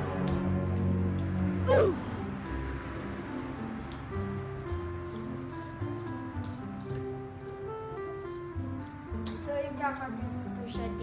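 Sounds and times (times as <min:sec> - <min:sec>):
background music: 0:00.0 - 0:11.0
crickets chirping: 0:02.9 - 0:09.6.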